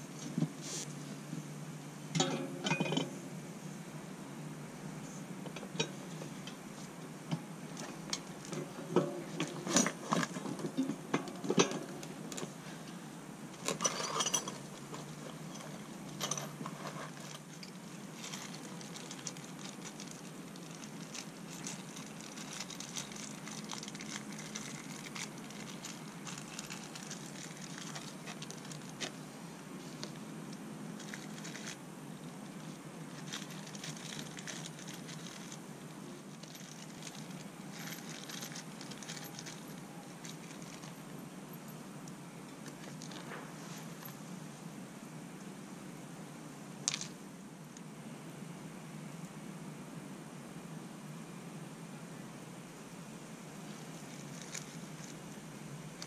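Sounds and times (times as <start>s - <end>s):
low room hum: 0.0s - 56.0s
metal parts clinking: 2.2s - 3.1s, 13.6s - 29.1s, 36.3s - 41.1s.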